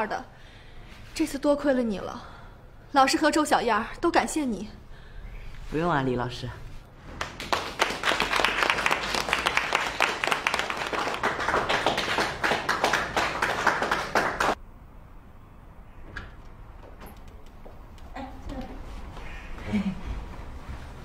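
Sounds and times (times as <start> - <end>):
people clapping in applause: 7.1 - 14.6.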